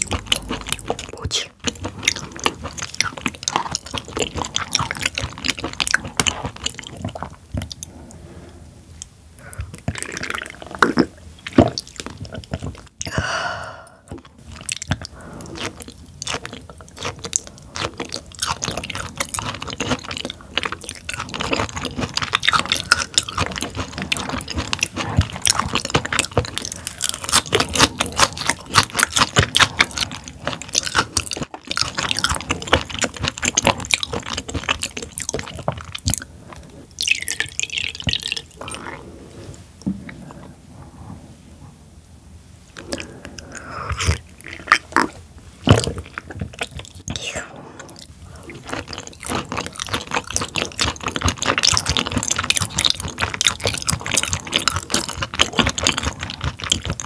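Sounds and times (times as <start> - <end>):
wet chewing clicks and smacks: 0.0 - 8.2, 14.1 - 38.9, 42.8 - 47.3, 47.9 - 57.0.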